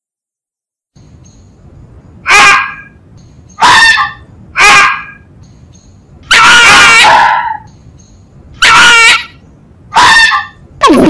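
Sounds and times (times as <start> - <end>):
fox calling: 2.2 - 3.0, 3.6 - 5.3, 6.3 - 7.7.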